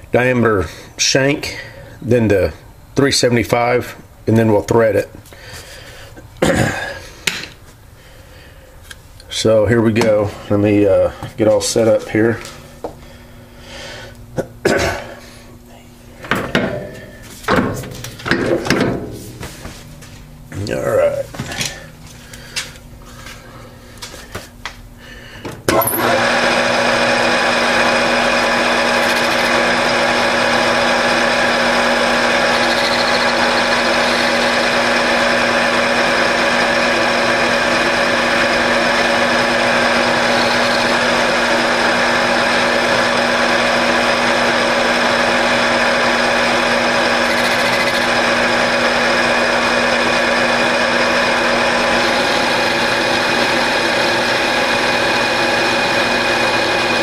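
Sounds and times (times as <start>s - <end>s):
metal lathe running with gear whine: 25.7s - 57.0s.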